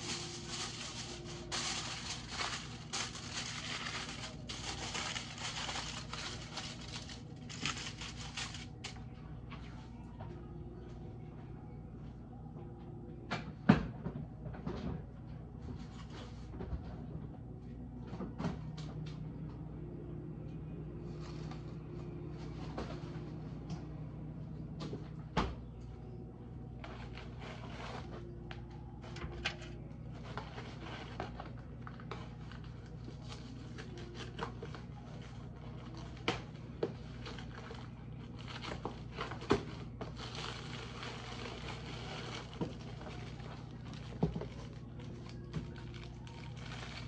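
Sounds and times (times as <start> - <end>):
rustling: 0.0 - 9.0
steady low hum: 0.0 - 47.0.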